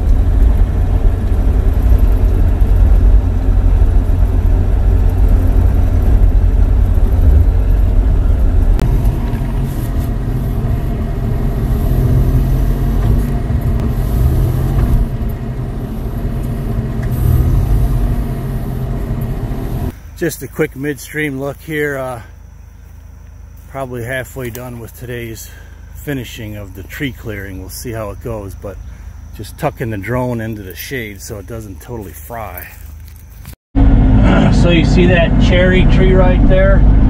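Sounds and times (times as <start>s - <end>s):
excavator diesel engine running: 0.0s - 20.4s.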